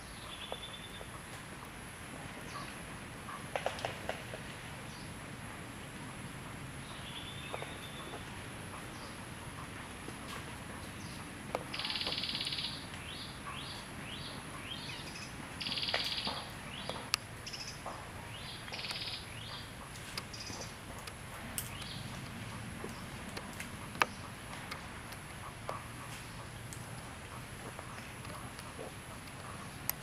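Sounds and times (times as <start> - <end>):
steady outdoor hiss: 0.0 - 30.0
bird calling with buzzy trills: 6.5 - 20.8.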